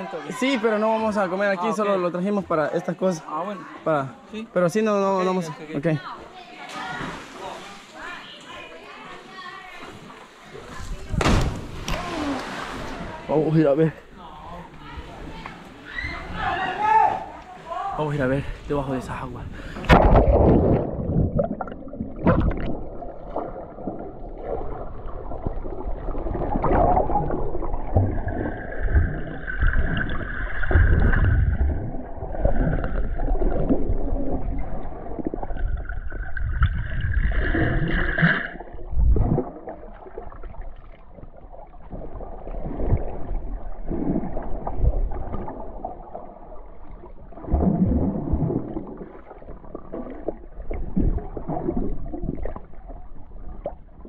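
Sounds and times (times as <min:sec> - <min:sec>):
muffled underwater sloshing: 0:17.3 - 0:54.0.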